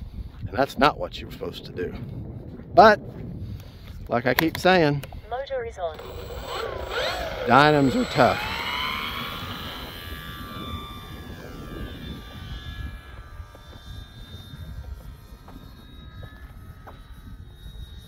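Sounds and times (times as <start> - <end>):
wind rumble on microphone: 0.0 - 18.0
electric motor and propeller whining: 5.0 - 18.0.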